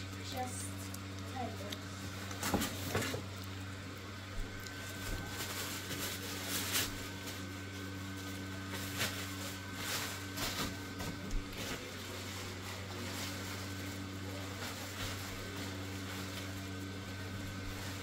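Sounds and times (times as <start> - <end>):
blower fan humming: 0.0 - 18.0
plastic bag crinkling: 4.5 - 16.9.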